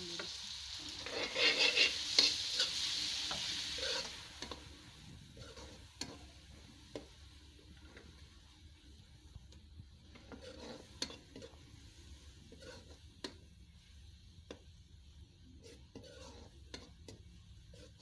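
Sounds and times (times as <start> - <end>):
faint frying sizzle: 0.0 - 18.0
metal spatula scraping a pan: 0.9 - 4.6, 5.2 - 6.3, 10.1 - 13.4, 15.6 - 18.0.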